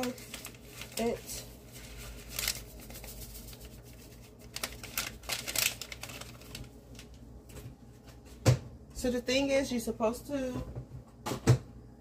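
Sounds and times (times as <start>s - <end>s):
packet crinkling and rustling: 0.0s - 7.6s.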